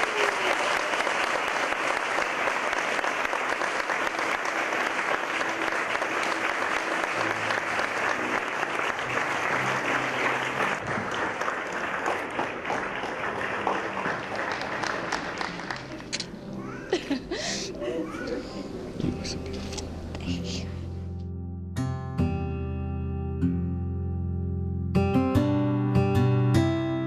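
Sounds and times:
congregation applauding: 0.0s - 17.5s.

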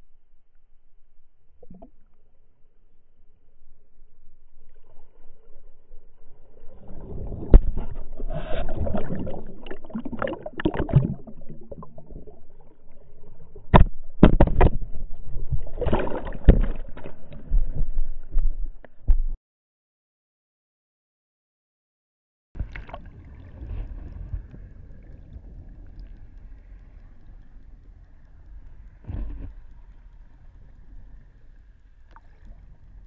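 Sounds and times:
muffled underwater water churning: 4.4s - 19.4s, 22.6s - 33.0s
water splashing: 6.4s - 18.5s, 22.6s - 33.0s.

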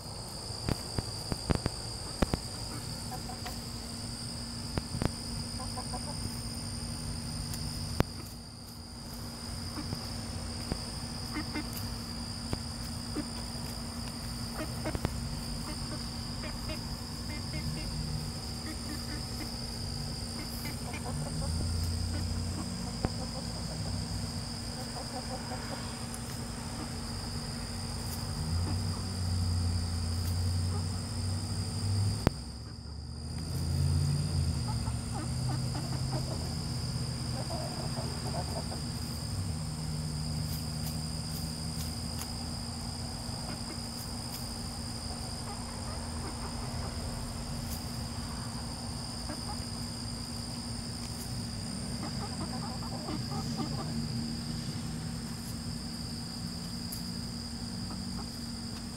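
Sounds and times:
high-pitched insect chorus: 0.0s - 58.9s
chicken clucking: 2.0s - 3.6s, 5.6s - 6.4s, 9.7s - 11.9s, 14.5s - 18.0s, 18.6s - 19.6s, 20.4s - 24.0s, 24.7s - 27.0s, 34.6s - 36.6s, 37.3s - 39.2s, 49.1s - 49.8s, 52.0s - 54.1s.

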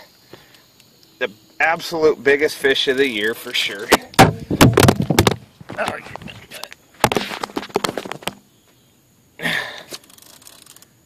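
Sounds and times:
camera handling knocks and rattles: 3.8s - 6.4s, 7.0s - 8.4s.

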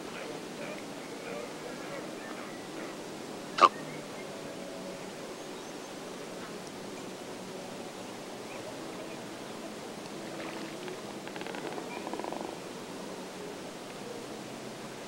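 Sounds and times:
steady background hiss: 0.0s - 15.0s
cormorants croaking: 0.7s - 4.0s, 11.2s - 12.6s.

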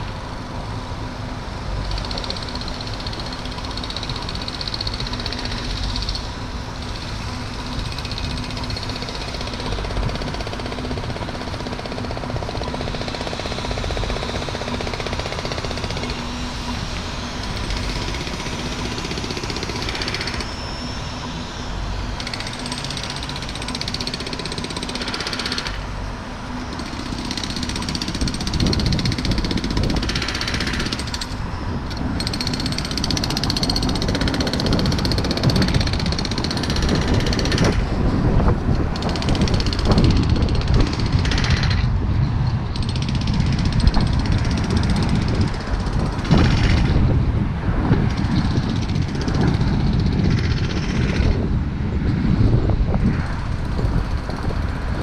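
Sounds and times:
road traffic: 0.0s - 55.0s.

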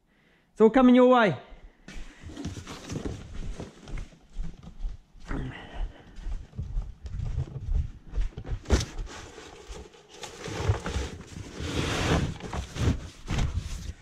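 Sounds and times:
footsteps: 1.8s - 11.5s
cardboard box rustling: 2.2s - 3.9s, 8.6s - 14.0s.

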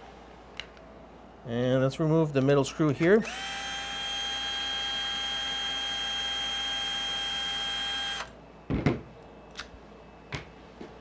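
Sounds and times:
drill motor whining: 3.2s - 8.3s.

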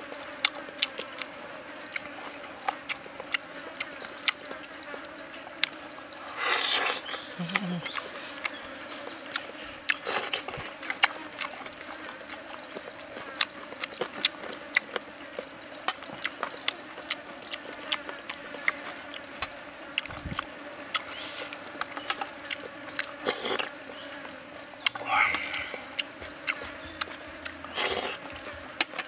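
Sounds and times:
chewing and lip smacking: 0.3s - 5.8s, 6.6s - 29.0s
short hissing sounds: 6.3s - 7.1s, 21.1s - 21.6s, 25.0s - 26.0s
sharp mouth clicks: 7.4s - 8.6s, 24.8s - 28.2s.

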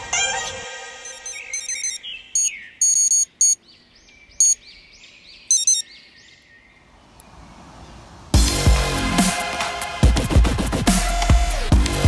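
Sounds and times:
electronic bite alarm beeping: 1.0s - 3.6s, 4.4s - 4.6s, 5.5s - 5.9s
bird chirping: 1.0s - 8.1s.

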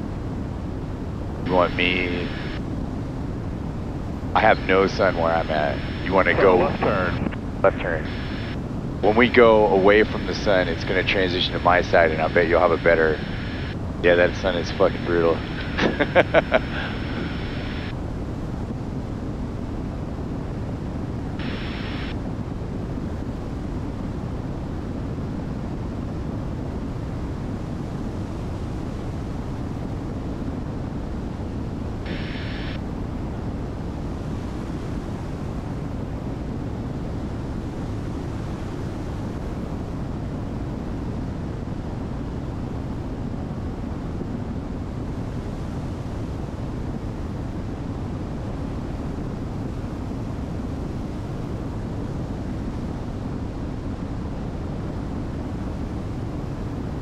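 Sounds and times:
light aircraft engine drone: 0.0s - 57.0s
rushing air: 11.5s - 18.0s, 21.4s - 22.2s, 32.1s - 32.8s.

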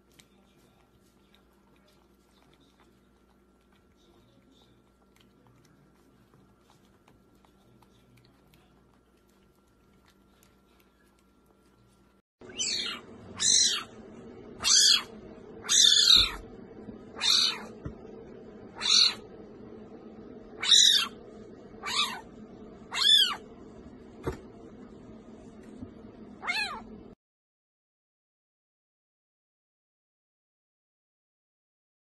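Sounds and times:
kitten high calls: 12.4s - 13.9s, 14.6s - 16.4s, 17.1s - 17.7s, 18.8s - 19.2s, 20.6s - 21.2s, 21.8s - 22.3s, 22.9s - 23.4s, 26.4s - 26.9s.

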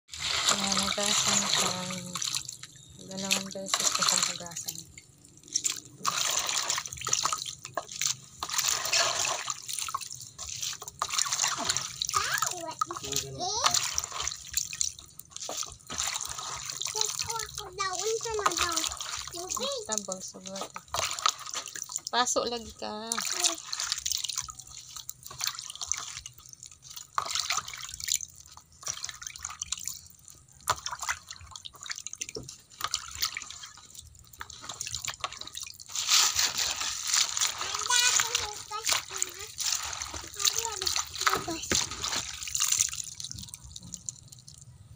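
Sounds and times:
water splashing in plastic basin: 0.1s - 44.8s.

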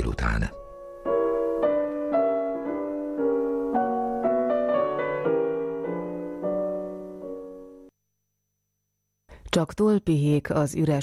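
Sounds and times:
piano chords: 0.0s - 7.9s.

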